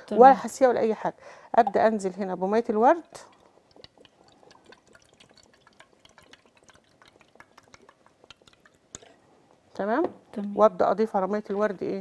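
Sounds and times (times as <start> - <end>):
liquid trickling into plastic tub: 2.7 - 9.2.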